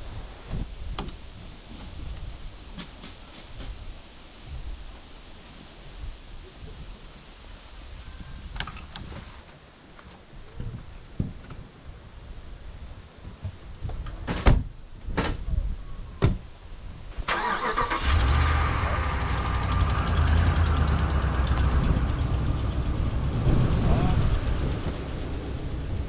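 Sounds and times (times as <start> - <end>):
truck engine running: 17.3 - 26.0.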